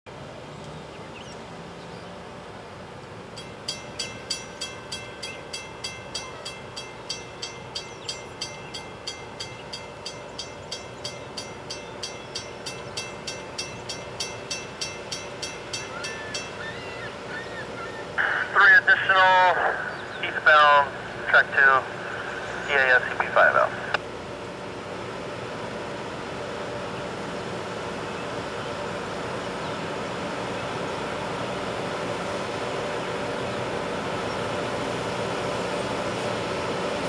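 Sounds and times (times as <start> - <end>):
train rumbling: 1.6 - 23.8
crossing warning bell ringing: 3.2 - 17.2.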